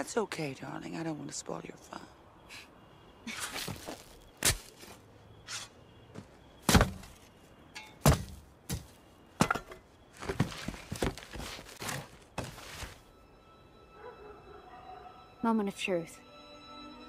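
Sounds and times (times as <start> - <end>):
spade scraping: 3.3 - 5.8.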